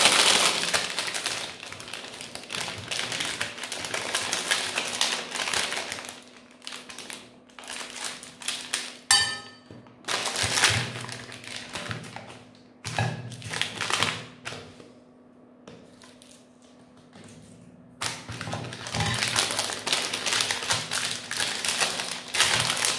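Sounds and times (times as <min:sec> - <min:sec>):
plastic wrappers crinkling: 0:00.0 - 0:09.1, 0:10.0 - 0:12.6, 0:13.3 - 0:14.6, 0:18.0 - 0:22.9
clink against glass plate: 0:09.1 - 0:09.7.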